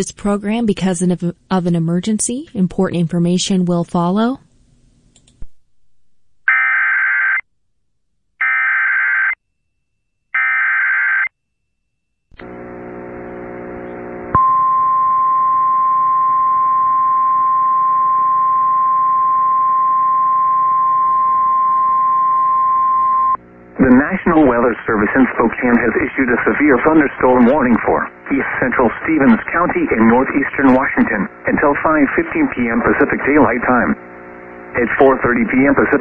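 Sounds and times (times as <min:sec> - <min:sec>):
low buzzing hum: 0:12.4 - 0:36.0.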